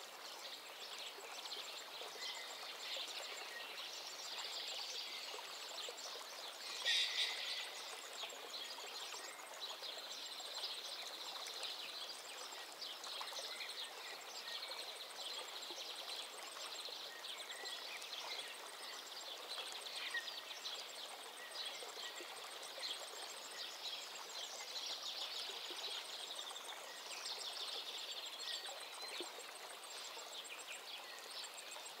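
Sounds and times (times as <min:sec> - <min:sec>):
birds chirping and trilling: 0:06.6 - 0:07.8.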